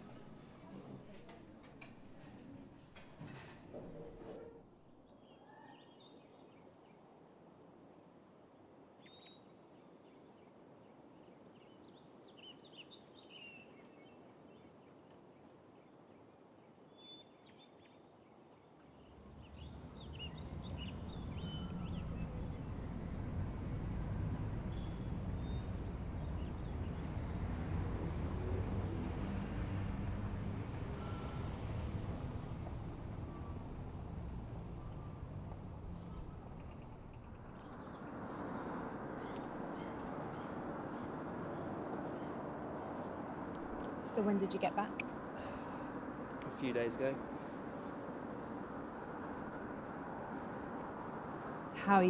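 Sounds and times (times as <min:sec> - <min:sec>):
faint birdsong: 0:01.8 - 0:52.0
road traffic rumble: 0:18.9 - 0:52.0.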